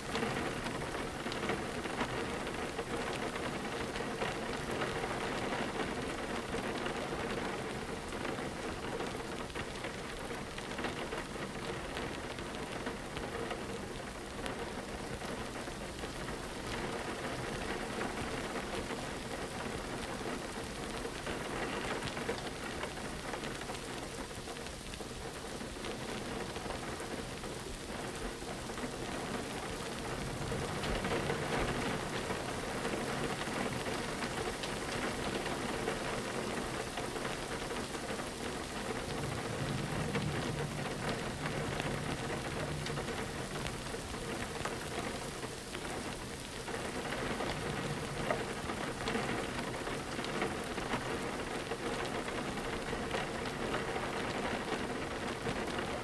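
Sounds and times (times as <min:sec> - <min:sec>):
rain on a window: 0:00.0 - 0:56.0
low rumble: 0:29.8 - 0:32.8, 0:38.8 - 0:45.2.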